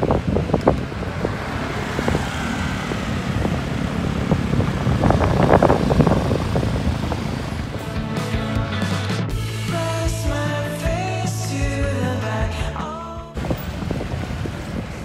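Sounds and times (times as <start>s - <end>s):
wind buffeting microphone: 0.0s - 8.2s, 13.4s - 15.0s
road traffic: 0.0s - 11.8s, 13.4s - 15.0s.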